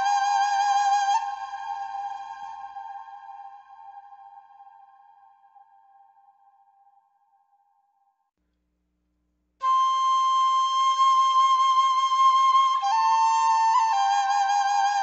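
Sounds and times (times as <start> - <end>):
long held flute-like notes: 0.0 - 6.1, 9.6 - 15.0.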